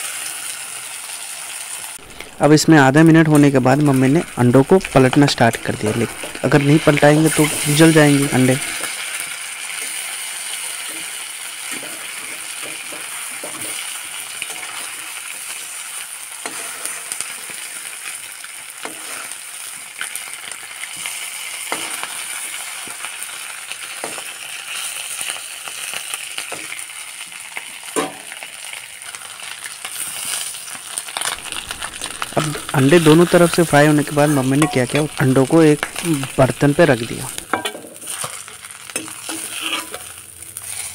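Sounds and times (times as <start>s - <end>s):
eggs frying in hot oil: 0.0s - 40.9s
steel spatula scraping pan: 3.8s - 9.0s, 31.4s - 40.9s.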